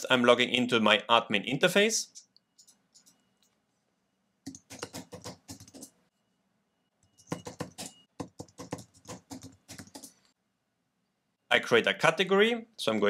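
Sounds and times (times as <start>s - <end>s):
computer keyboard typing: 4.5s - 6.0s, 7.2s - 10.3s.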